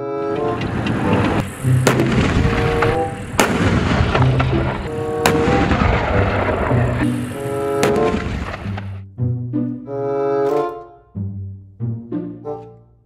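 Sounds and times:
gunfire-like bangs: 0.5s - 9.0s
background music with bass line: 5.7s - 13.0s.

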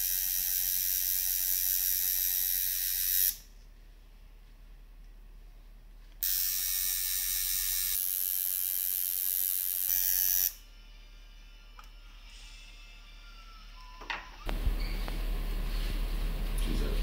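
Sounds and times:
tattoo machine buzzing: 0.0s - 3.5s, 6.2s - 10.7s.

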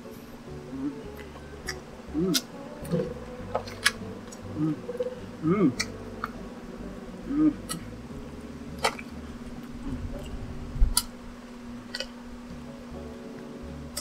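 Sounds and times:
person humming: 0.0s - 10.9s
low hum: 0.0s - 14.0s.

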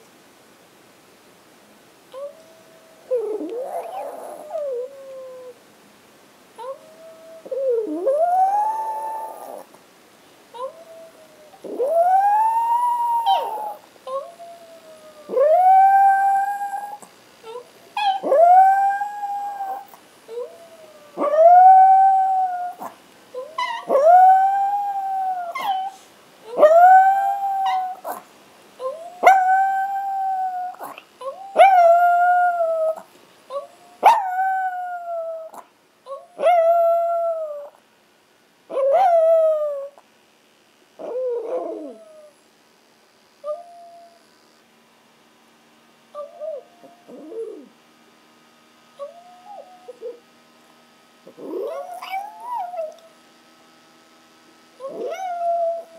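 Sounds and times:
dog howling: 2.2s - 5.6s, 6.6s - 9.7s, 10.6s - 28.2s, 28.8s - 37.8s, 41.0s - 42.4s, 46.2s - 47.8s, 49.0s - 50.2s, 51.3s - 53.2s, 54.8s - 55.9s.

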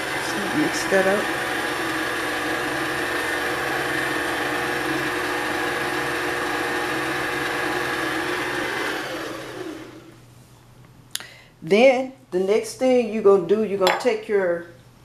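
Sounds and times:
stand mixer motor whine: 0.0s - 10.1s.

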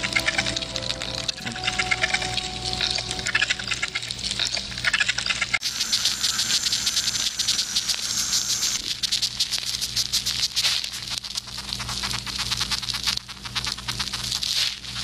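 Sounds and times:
steady low hum: 0.0s - 9.3s
ants crackling and scratching: 0.0s - 15.0s.

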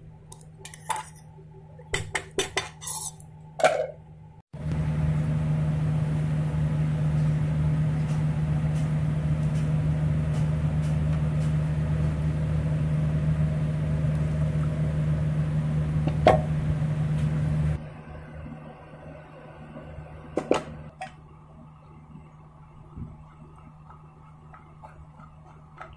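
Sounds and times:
spoon scraping mesh sieve: 2.6s - 3.3s
low machine hum: 3.2s - 25.9s.

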